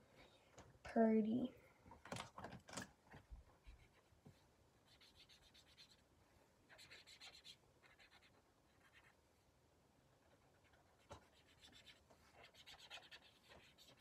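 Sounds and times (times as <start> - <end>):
marker scratching on paper: 3.6 - 6.0, 6.7 - 9.2, 10.2 - 14.0.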